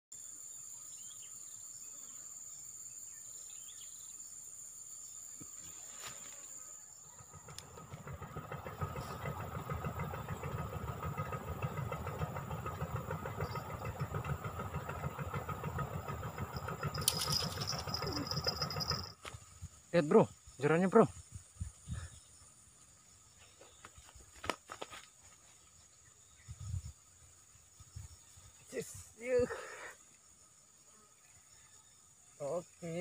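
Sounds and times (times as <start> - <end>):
low throbbing engine rumble: 7.0 - 19.6.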